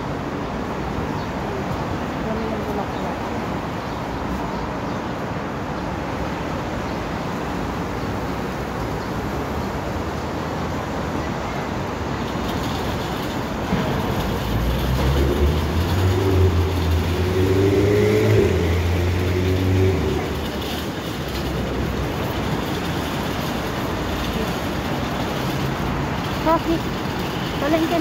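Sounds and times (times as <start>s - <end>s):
road traffic noise: 0.0s - 28.0s
large vehicle engine hum: 6.2s - 28.0s.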